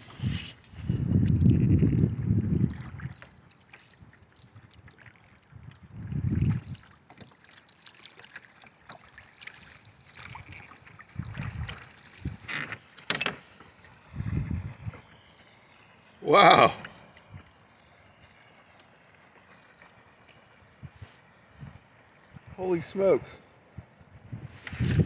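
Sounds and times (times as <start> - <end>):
wind gusting on microphone: 0.0 - 3.2, 5.5 - 6.8, 11.1 - 12.5, 14.0 - 15.1, 20.8 - 25.0
water lapping and splashing: 0.0 - 25.0.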